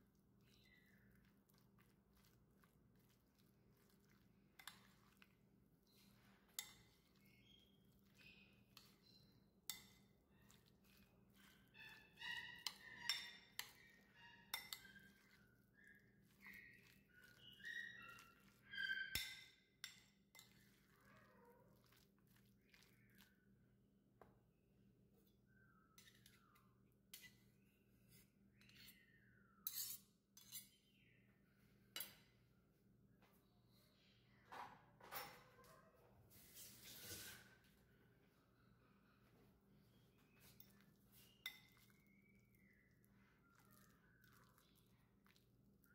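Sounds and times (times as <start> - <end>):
metal utensil clinking on bowl: 3.8 - 5.3, 5.9 - 15.4, 16.4 - 20.9, 41.3 - 41.9
scraping squeaks: 10.5 - 15.5, 16.4 - 19.5.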